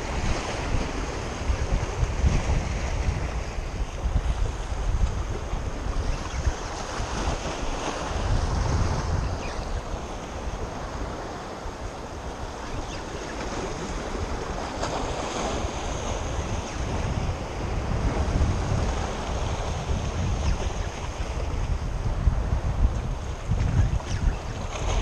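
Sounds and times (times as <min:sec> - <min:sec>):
waves washing: 0:00.0 - 0:25.0
wind buffeting microphone: 0:00.0 - 0:25.0.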